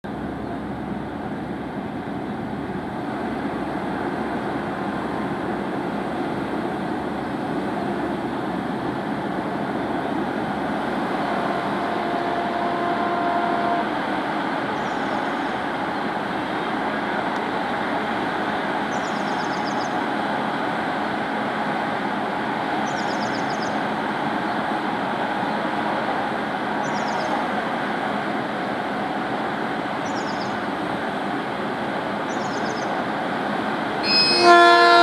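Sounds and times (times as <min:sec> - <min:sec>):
diesel locomotive rumbling: 0:00.0 - 0:35.0
short high chirps: 0:34.0 - 0:34.5
faint brief tone: 0:34.0 - 0:34.8.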